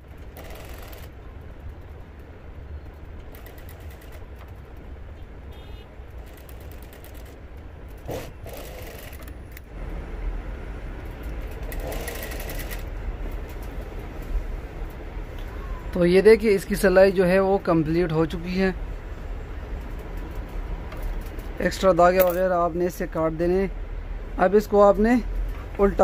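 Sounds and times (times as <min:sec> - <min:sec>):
sewing machine running: 0:00.3 - 0:01.1, 0:08.1 - 0:09.2, 0:11.6 - 0:12.8.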